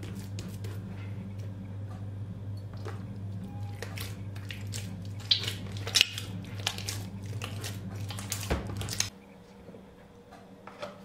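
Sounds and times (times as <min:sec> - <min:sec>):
steady low hum: 0:00.0 - 0:11.0
wet dough squelching: 0:02.7 - 0:09.1.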